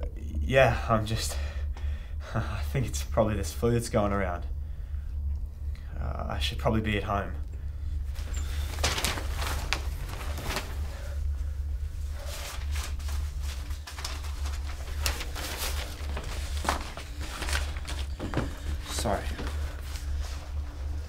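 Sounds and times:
steady low hum: 0.0 - 21.0
paper rustling: 8.1 - 21.0.

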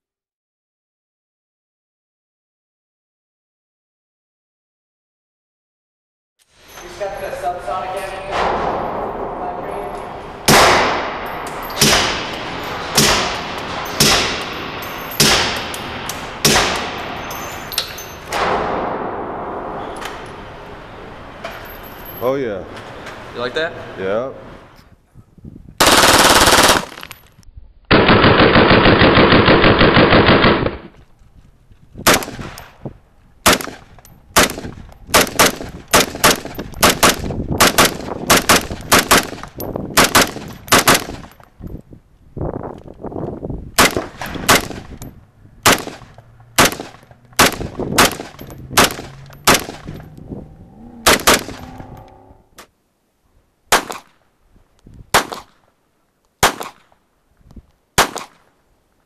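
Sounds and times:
gunshots: 8.3 - 9.6, 10.4 - 14.6, 15.2 - 17.1, 27.9 - 30.9, 32.0 - 32.6, 33.4 - 41.3, 43.8 - 45.0, 45.6 - 50.1, 51.0 - 51.8, 53.7 - 54.2, 55.1 - 55.6, 56.4 - 56.8, 58.0 - 58.4
rapid gunfire burst: 25.8 - 27.0, 27.9 - 30.9.

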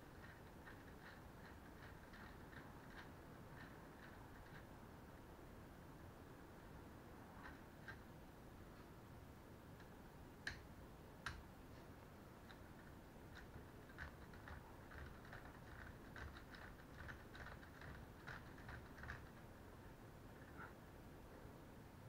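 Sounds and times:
plastic toy parts clicking: 0.2 - 4.7, 12.4 - 19.4.

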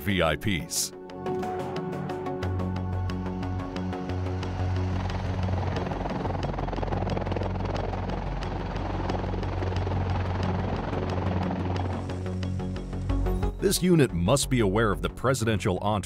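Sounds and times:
steady rushing drone: 1.0 - 13.4.

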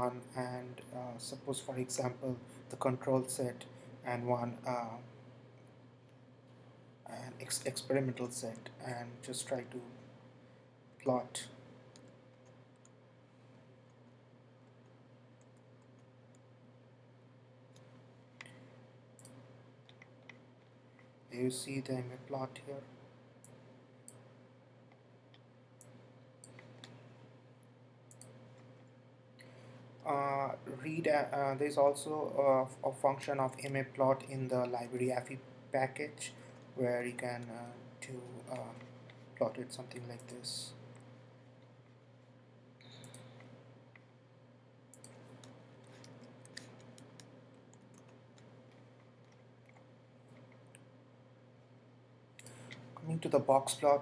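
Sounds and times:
low steady hum: 0.0 - 54.0
computer mouse clicks: 28.1 - 28.9, 42.8 - 44.1, 44.9 - 50.9.

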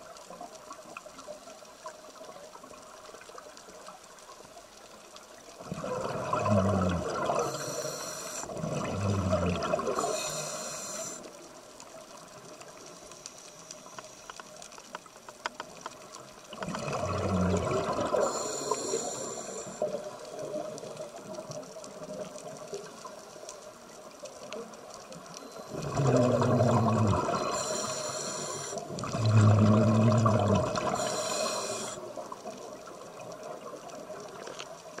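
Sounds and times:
underwater hiss: 5.7 - 11.6, 12.7 - 14.6, 17.0 - 21.2, 25.4 - 32.4
regulator hiss: 7.2 - 8.5, 9.7 - 11.5, 18.0 - 20.2, 26.9 - 29.0, 30.5 - 32.1
bubbling exhalation: 25.7 - 27.5, 29.0 - 31.2.

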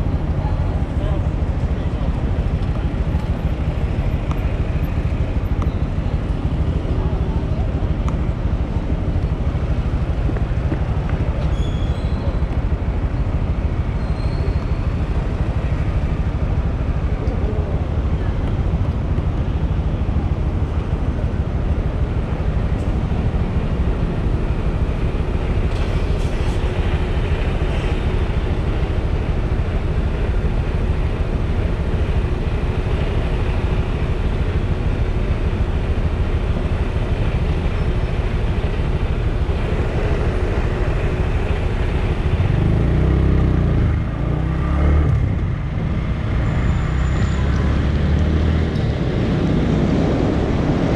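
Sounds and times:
road noise: 0.0 - 50.9
motorcycle engine: 14.9 - 50.9
wind rumble on microphone: 48.6 - 50.9.

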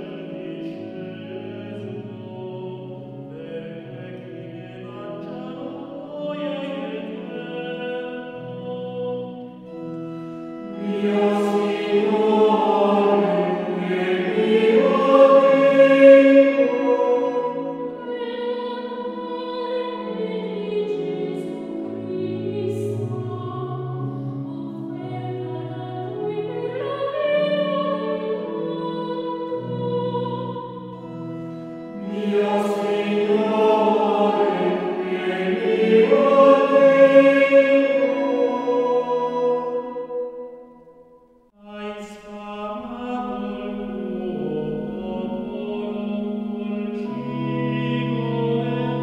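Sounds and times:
choir singing: 0.0 - 40.9, 41.5 - 49.0.

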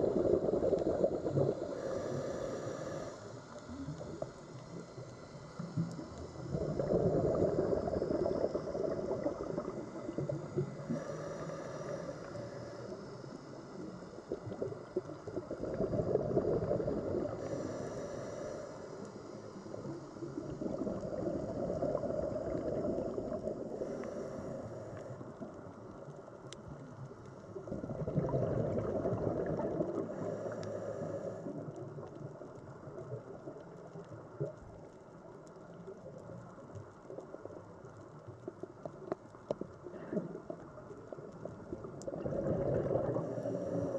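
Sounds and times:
exhaled bubbles underwater: 0.0 - 3.0, 3.6 - 11.2, 11.8 - 17.8, 19.6 - 43.9
regulator inhalation hiss: 1.0 - 14.5, 17.0 - 20.4, 21.1 - 25.3, 30.0 - 31.5.

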